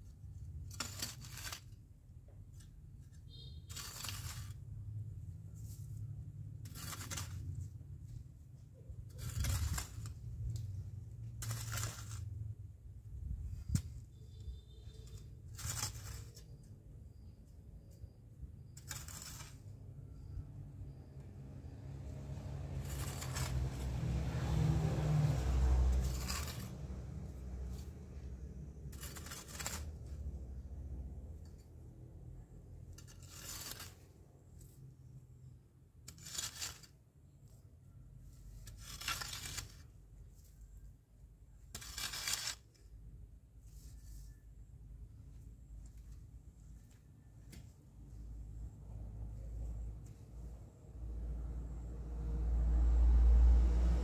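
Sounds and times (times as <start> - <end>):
tool scraping dry soil: 0.0 - 21.0, 22.1 - 35.0, 35.9 - 48.2
hand tool chopping stony soil: 0.5 - 1.7, 3.6 - 4.6, 6.6 - 7.5, 9.2 - 10.2, 11.4 - 12.2, 22.8 - 23.9, 25.1 - 26.9, 28.8 - 30.0.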